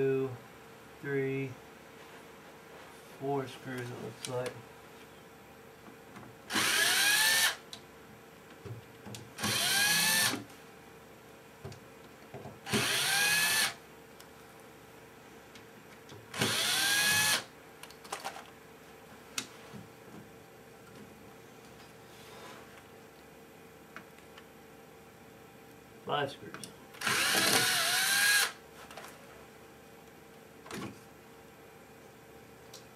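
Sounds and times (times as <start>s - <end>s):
cordless drill whining: 6.5s - 7.6s, 9.4s - 10.4s, 12.7s - 13.8s, 16.4s - 17.5s, 27.0s - 28.6s.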